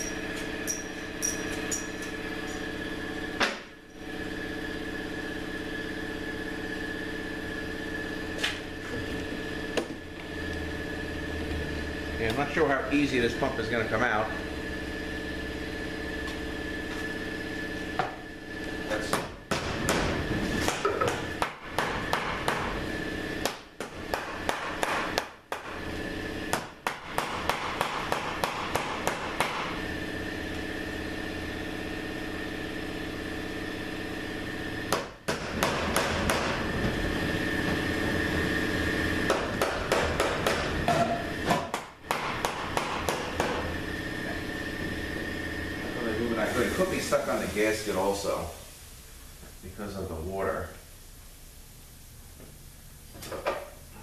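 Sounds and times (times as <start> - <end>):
steady background hum: 0.0 - 54.0.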